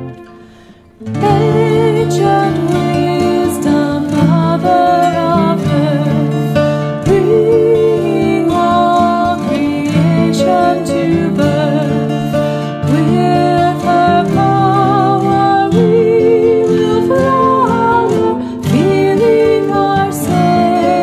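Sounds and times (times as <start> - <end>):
plucked-string rhythm: 0.0 - 21.0
violin: 0.0 - 21.0
women singing a hymn: 1.1 - 6.4, 7.0 - 21.0.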